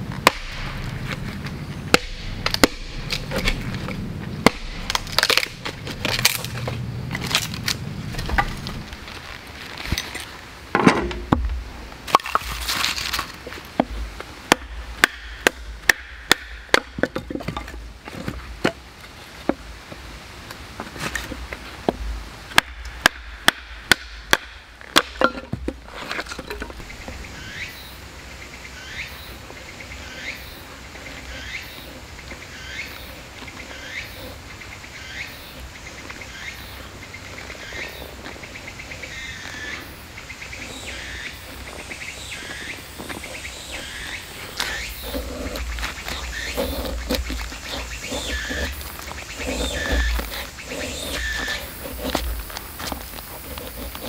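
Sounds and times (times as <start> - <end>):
knife batoning through firewood: 43.1 - 54.0.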